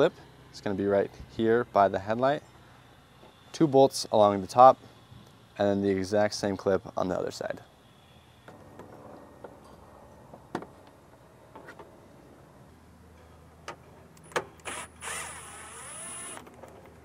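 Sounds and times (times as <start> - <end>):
cordless power tool whirring: 14.6 - 16.8.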